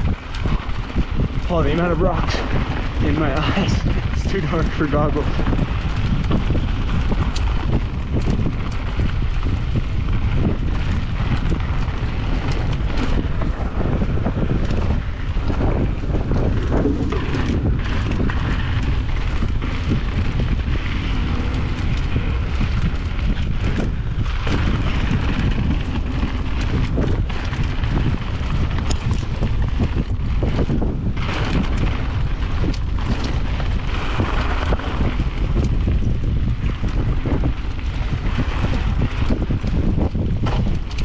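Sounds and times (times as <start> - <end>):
bike tyres clattering over rocks: 0.0 - 41.0
wind buffeting microphone: 0.0 - 41.0.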